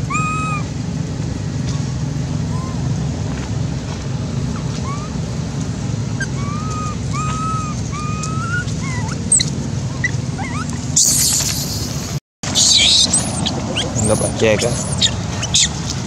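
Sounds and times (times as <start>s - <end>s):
baby monkey coo calls: 0.0s - 0.8s, 1.7s - 3.0s, 4.7s - 5.2s, 6.2s - 15.9s.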